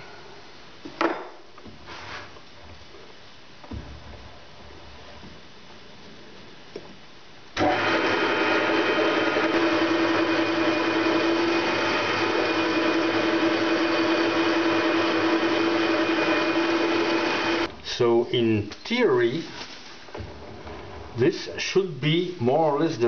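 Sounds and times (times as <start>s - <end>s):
lathe tool cutting metal: 7.6s - 17.7s
metal lathe whining: 7.6s - 17.7s.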